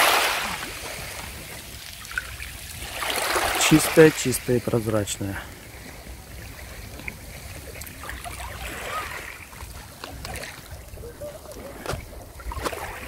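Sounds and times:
water lapping at pebble shore: 0:00.0 - 0:13.0
wind rumble on microphone: 0:05.5 - 0:13.0.

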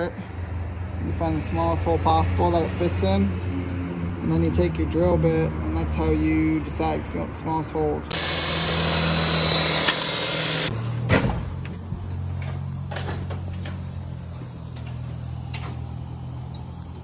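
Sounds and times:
power drill running: 0:08.1 - 0:10.8.

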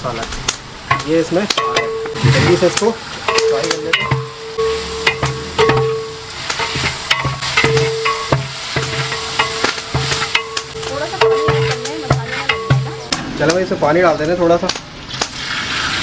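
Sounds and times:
frying sizzle: 0:00.0 - 0:16.0
metal ladle scraping cooking pot: 0:01.6 - 0:13.1.

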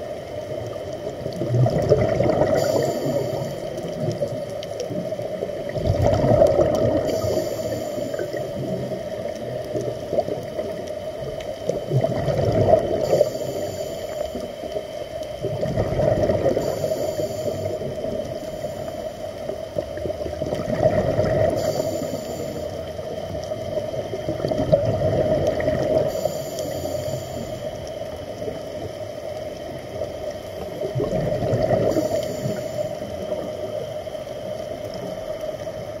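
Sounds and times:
exhaled bubbles gurgling: 0:00.0 - 0:36.0
regulator inhalation hiss: 0:02.6 - 0:04.2, 0:07.0 - 0:08.9, 0:13.0 - 0:14.7, 0:16.6 - 0:19.5, 0:21.6 - 0:23.2, 0:26.0 - 0:28.2, 0:31.8 - 0:33.5.

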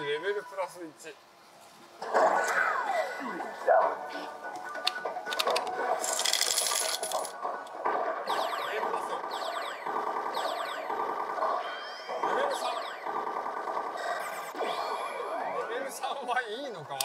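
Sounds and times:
electronic sweeping tones: 0:08.3 - 0:16.0.

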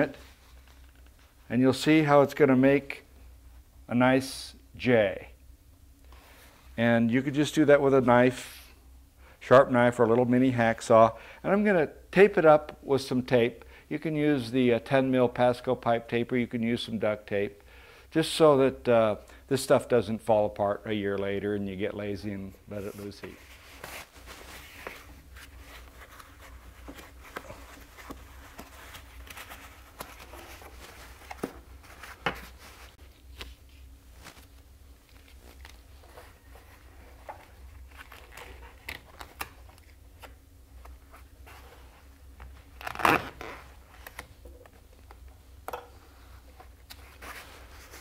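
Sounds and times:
rustling and crinkling: 0:22.8 - 0:48.0.

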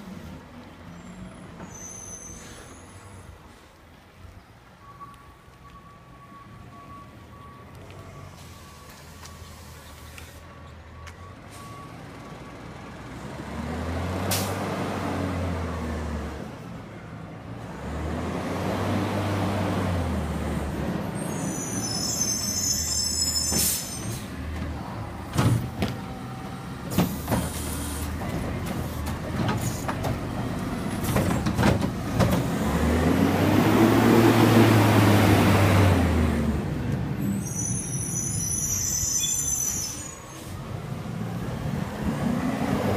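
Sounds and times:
air brake hisses: 0:01.6 - 0:03.6, 0:21.2 - 0:24.3, 0:27.0 - 0:28.1
garbage truck engine revving: 0:27.0 - 0:36.9.

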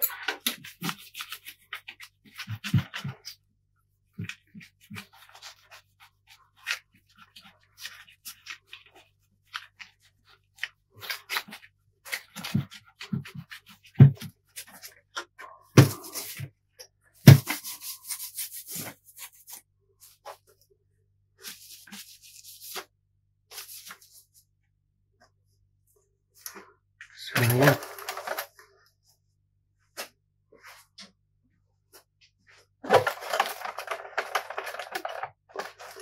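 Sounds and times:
wipe rubbing on plastic: 0:17.4 - 0:20.4.

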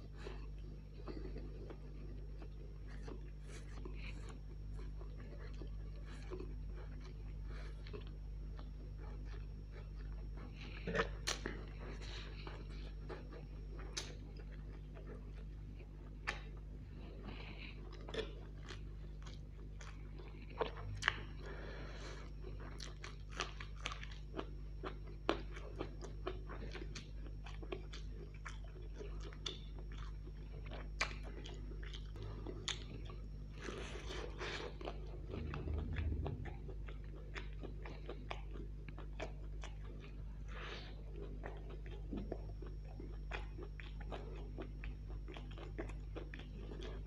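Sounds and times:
person chewing crunchy food: 0:00.0 - 0:47.0
low hum: 0:20.4 - 0:22.8, 0:32.1 - 0:38.4.

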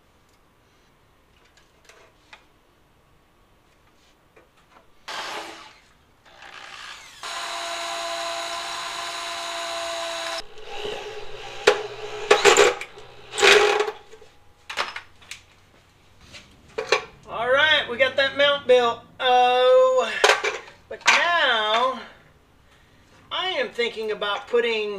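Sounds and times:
cordless drill boring into metal: 0:05.1 - 0:14.2
sharp metal knocks and clanks: 0:10.4 - 0:15.1.

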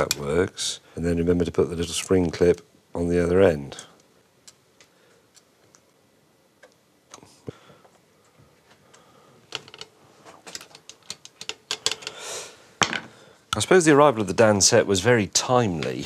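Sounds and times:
small metal parts clicking: 0:09.5 - 0:12.2.

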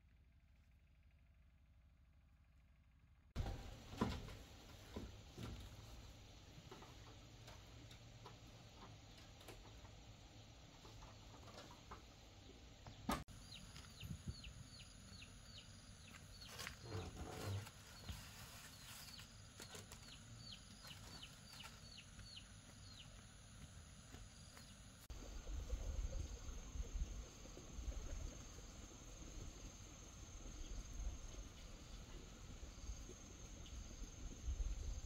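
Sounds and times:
bird chirping: 0:10.8 - 0:23.3.

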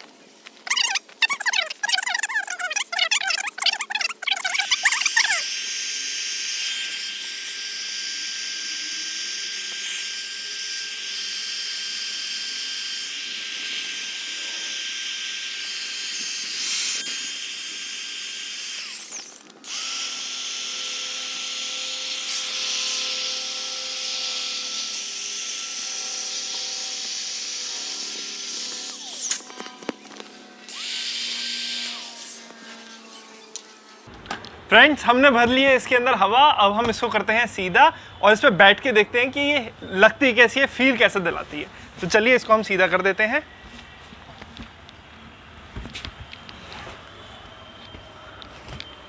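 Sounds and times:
electric air pump whining: 0:00.6 - 0:34.1.

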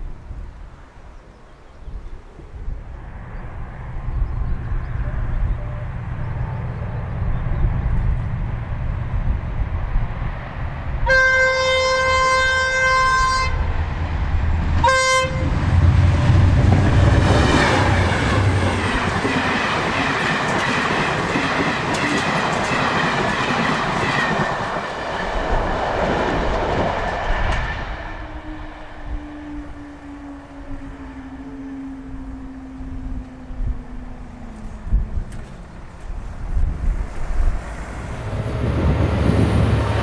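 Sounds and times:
diesel engines passing: 0:03.0 - 0:22.6, 0:24.6 - 0:40.0
diesel locomotive horn: 0:05.0 - 0:07.0, 0:11.0 - 0:13.8, 0:14.8 - 0:18.8, 0:28.2 - 0:34.8
train coaches rattling: 0:14.4 - 0:28.0.

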